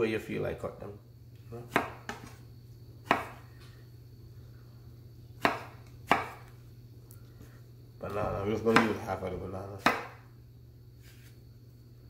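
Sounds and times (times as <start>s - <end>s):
steady low hum: 0.0s - 12.0s
knife knocking on cutting board: 9.8s - 10.2s.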